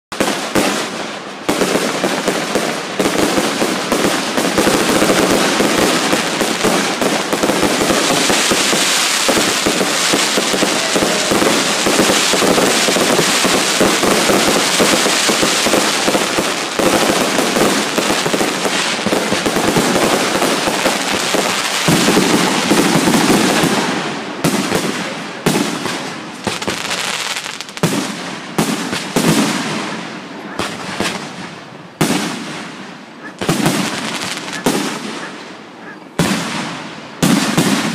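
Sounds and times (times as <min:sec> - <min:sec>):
fireworks bangs and crackling: 0:00.1 - 0:37.9.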